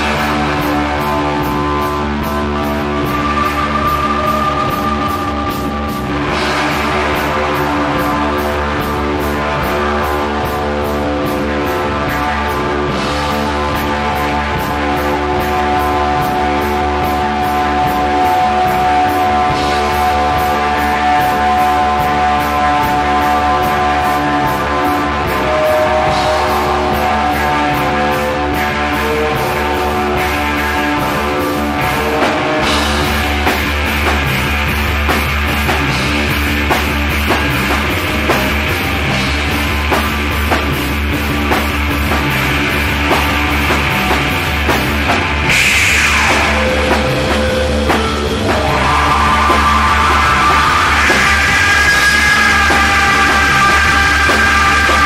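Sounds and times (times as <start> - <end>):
drum kit beat: 0.0 - 55.0
guitars: 0.0 - 55.0
psychedelic rock music: 0.0 - 55.0
sweeping effect: 24.9 - 55.0.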